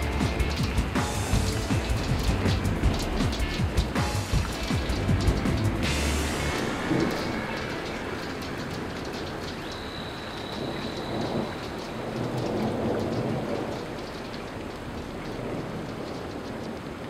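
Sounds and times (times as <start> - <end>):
low rumble of thunder: 0.0 - 17.0
steady rain: 0.0 - 17.0.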